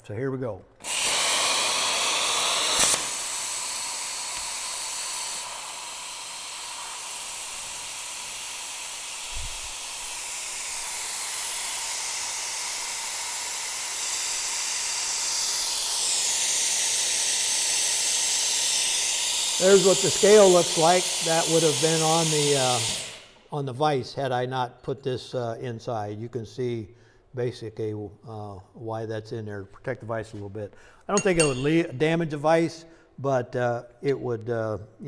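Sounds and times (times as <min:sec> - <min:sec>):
plasma torch arc cutting: 0:00.8 - 0:23.4
air hissing from torch: 0:00.8 - 0:23.5.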